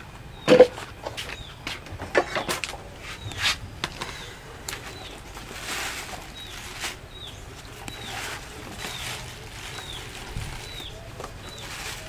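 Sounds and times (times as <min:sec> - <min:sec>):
bird chirping: 0:00.3 - 0:05.5, 0:06.1 - 0:12.0
plastic bags crinkling: 0:04.6 - 0:12.0.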